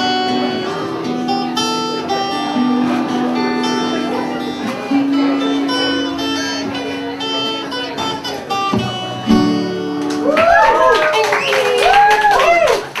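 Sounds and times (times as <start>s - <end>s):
acoustic guitar picking: 0.0s - 10.7s
audience clapping and cheering: 10.0s - 13.0s
voices whooping: 10.2s - 13.0s.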